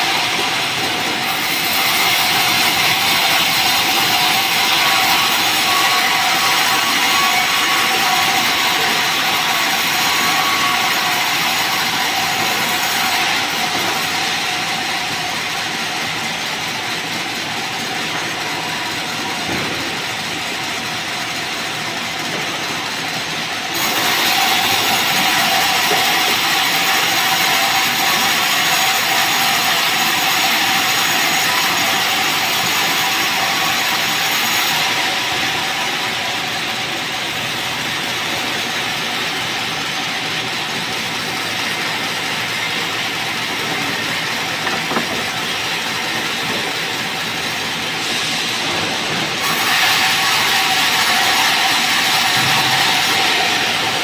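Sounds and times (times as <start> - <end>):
band saw humming: 37.6 - 48.1.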